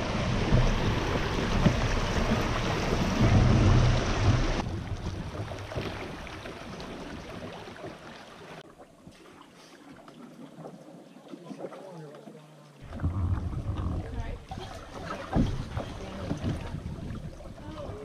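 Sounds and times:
wind rumble on microphone: 0:00.0 - 0:07.3, 0:12.8 - 0:14.7, 0:15.3 - 0:18.0
water rushing over rocks: 0:00.0 - 0:08.6
river flowing: 0:00.0 - 0:10.3.

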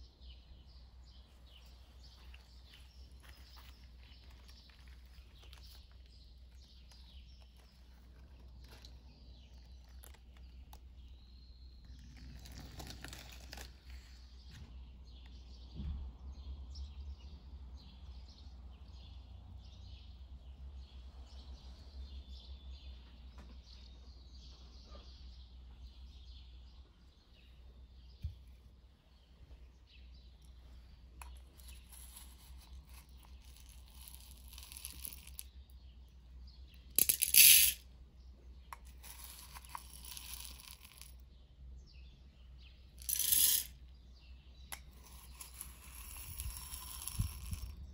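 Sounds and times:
small clicks and rustles: 0:01.5 - 0:11.1, 0:11.8 - 0:14.7.

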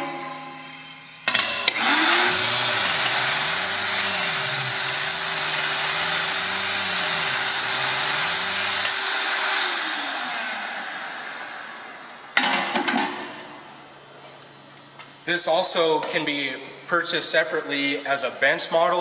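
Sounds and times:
dust vacuum running: 0:00.0 - 0:12.6
motor hum: 0:00.0 - 0:14.1.

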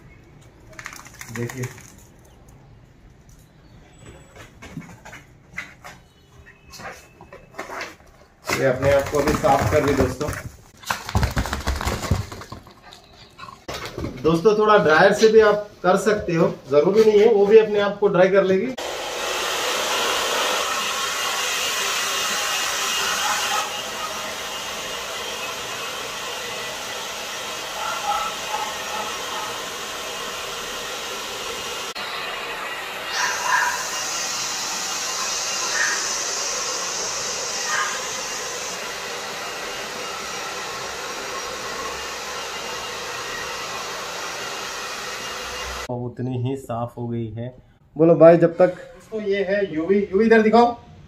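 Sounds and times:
hair dryer blowing: 0:08.6 - 0:10.1, 0:18.7 - 0:45.9.

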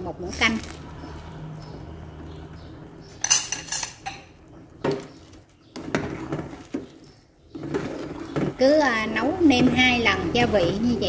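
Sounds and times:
metal ladle clinking in pot: 0:03.2 - 0:04.4.

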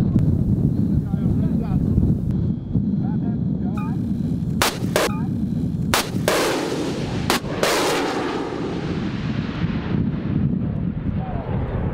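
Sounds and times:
rushing rocket noise: 0:00.0 - 0:11.9
missile launch bangs: 0:05.9 - 0:10.6.

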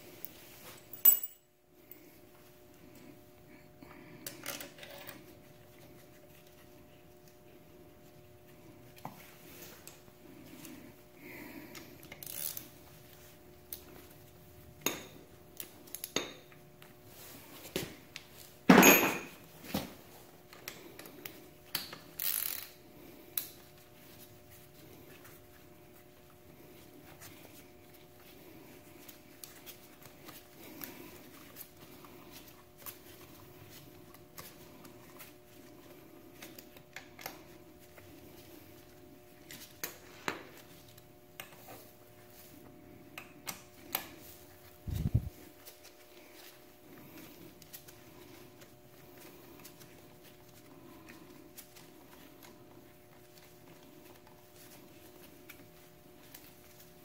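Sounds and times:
faint steady hum: 0:00.0 - 0:57.0
metal tools clinking: 0:00.7 - 0:01.4, 0:18.7 - 0:19.4.

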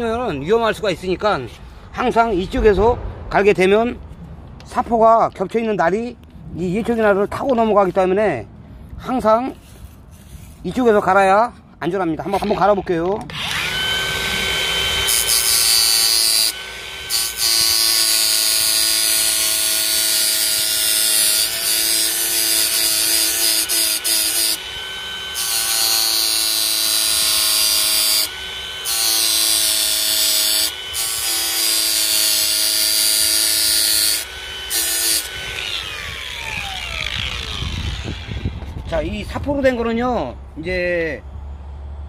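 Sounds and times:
angle grinder grinding metal: 0:12.2 - 0:39.0
grinder winding down: 0:13.2 - 0:38.9.

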